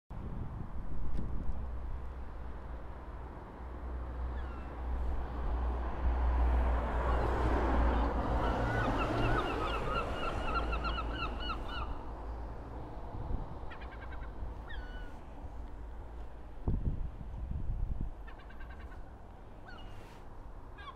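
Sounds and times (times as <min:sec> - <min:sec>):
low traffic rumble: 0:00.1 - 0:20.9
crows calling: 0:08.4 - 0:12.0, 0:13.7 - 0:15.2.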